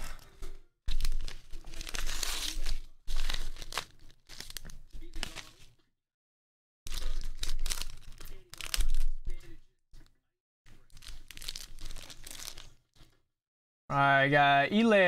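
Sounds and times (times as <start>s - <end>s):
paper crinkling: 0.0s - 5.8s, 6.9s - 10.1s, 10.7s - 13.2s
paper envelope tearing: 0.9s - 5.7s, 6.9s - 9.4s, 10.7s - 13.1s.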